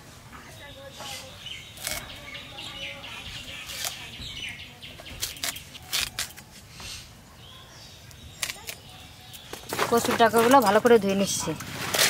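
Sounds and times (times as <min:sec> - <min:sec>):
birds chirping: 0:00.3 - 0:11.7
crisp cuts of plant stalks: 0:01.7 - 0:02.2, 0:03.5 - 0:04.3, 0:05.0 - 0:06.6, 0:08.1 - 0:10.9.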